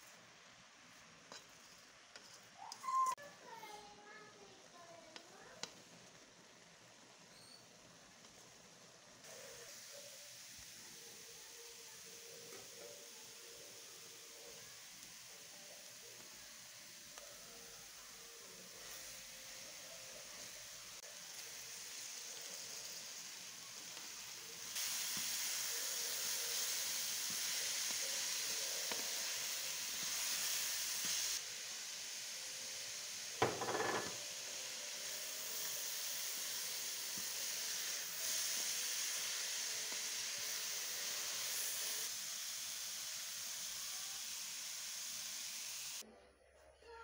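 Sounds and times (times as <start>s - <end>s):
carrots sizzling in a pan: 0.0s - 46.0s
knock on a metal pan: 33.4s - 34.2s.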